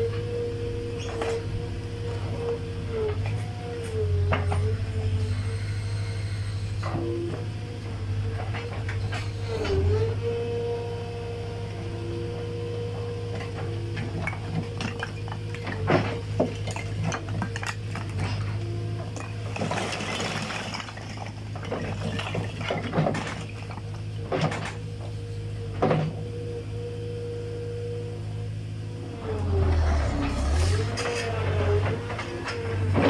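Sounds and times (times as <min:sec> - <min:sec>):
loader engine running: 0:00.0 - 0:33.0
rush of sliding stone: 0:19.2 - 0:23.4.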